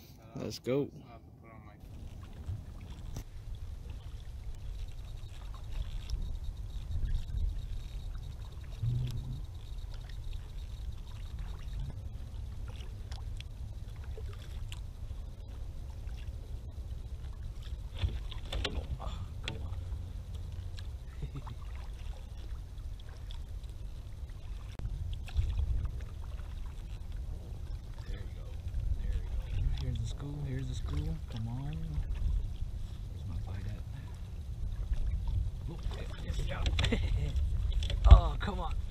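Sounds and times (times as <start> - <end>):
low rumble: 1.3 - 38.9
water splashing against kayak hull: 1.8 - 38.9.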